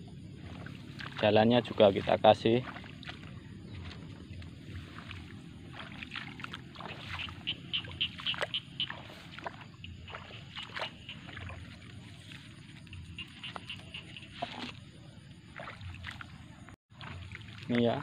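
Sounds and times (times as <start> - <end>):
footsteps scuffing on mud: 0.4 - 17.8.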